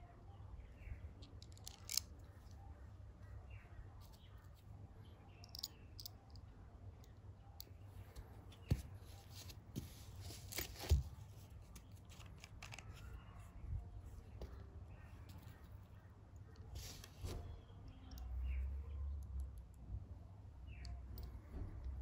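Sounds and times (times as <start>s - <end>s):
metallic clicks and scrapes: 1.2s - 2.2s.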